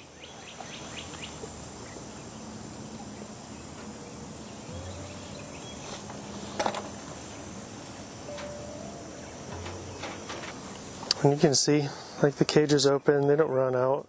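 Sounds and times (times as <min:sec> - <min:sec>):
outdoor hiss: 0:00.0 - 0:14.0
quail cooing: 0:04.7 - 0:07.0.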